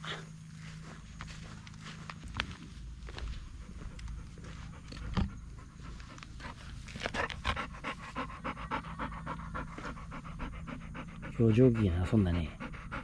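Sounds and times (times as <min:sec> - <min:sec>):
dog panting rapidly: 0:03.4 - 0:13.0.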